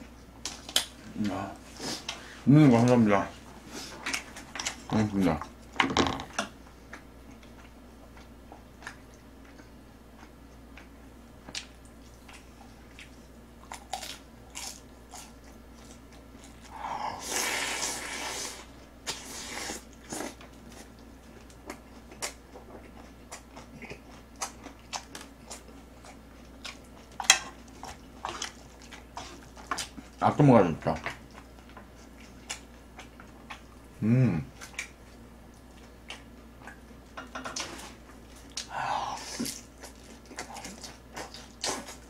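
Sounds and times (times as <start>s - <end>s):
chewing: 6.9s - 16.7s, 17.3s - 30.2s, 31.0s - 33.8s, 34.5s - 42.0s.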